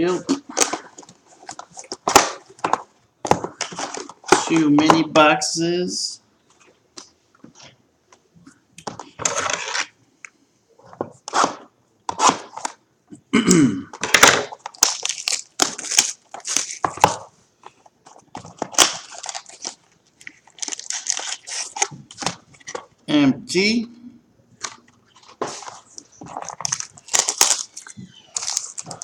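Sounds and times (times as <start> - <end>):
plastic wrapping crinkling: 14.0 - 22.9, 24.6 - 29.0
cardboard rustling: 24.6 - 29.0.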